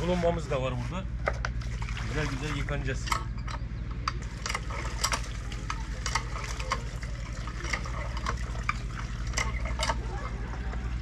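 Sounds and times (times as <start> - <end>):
water splashing from a pump: 0.0 - 0.8, 1.5 - 3.2, 4.2 - 11.0
steady low hum: 0.0 - 11.0
crackling drips: 4.1 - 10.9.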